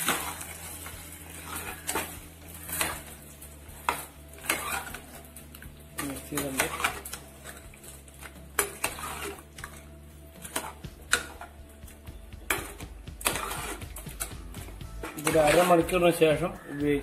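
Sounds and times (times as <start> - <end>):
spoon scraping a steel pot: 0.0 - 11.5, 12.5 - 15.9.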